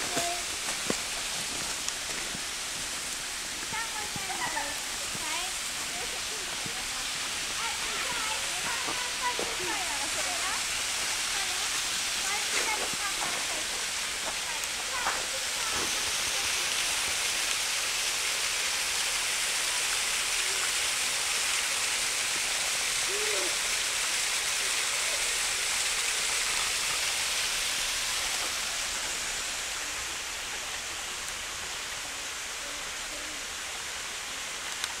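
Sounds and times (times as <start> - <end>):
water rushing: 0.0 - 35.0.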